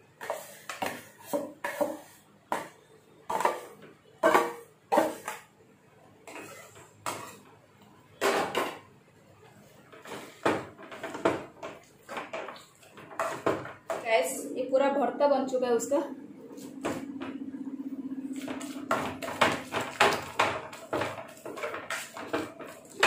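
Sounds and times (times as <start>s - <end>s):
potato masher mashing: 18.4s - 23.0s.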